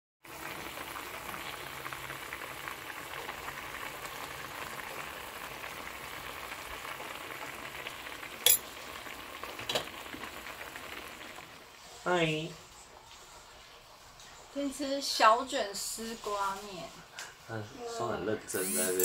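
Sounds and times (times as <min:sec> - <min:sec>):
food bubbling and sizzling in broth: 0:00.2 - 0:13.3.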